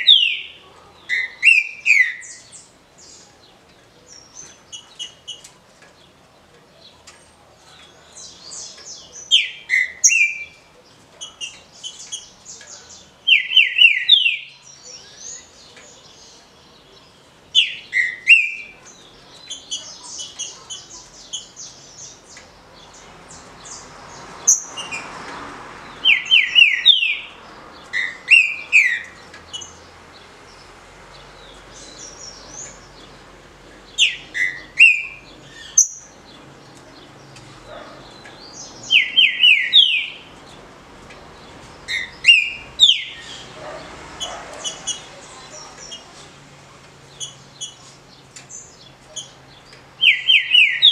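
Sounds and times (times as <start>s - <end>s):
bird whistling song: 0.0s - 2.5s, 9.3s - 10.6s, 13.3s - 15.5s, 17.6s - 18.7s, 26.0s - 27.3s, 34.0s - 36.1s, 38.8s - 40.2s, 41.9s - 43.3s, 50.0s - 50.9s.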